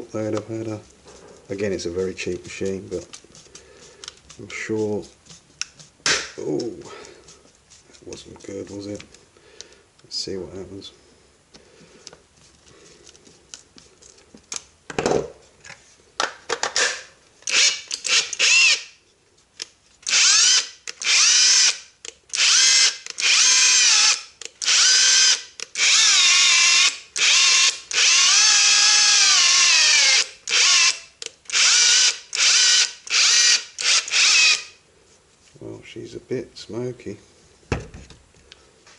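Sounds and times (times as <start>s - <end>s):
impact driver motor whine: 22.4s - 34.7s.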